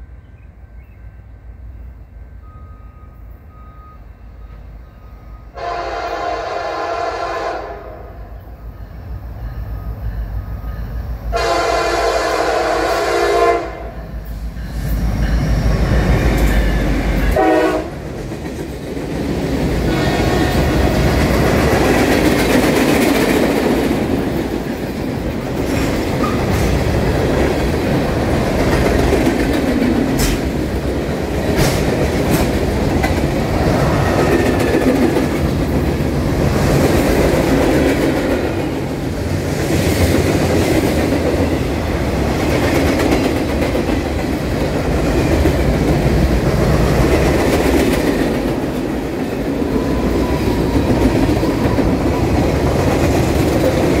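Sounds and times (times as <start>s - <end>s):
locomotive horn blasts: 5.5s - 8.3s, 11.3s - 14.0s, 17.2s - 18.0s, 19.9s - 20.8s
train wheels clacking on rails: 14.1s - 54.0s.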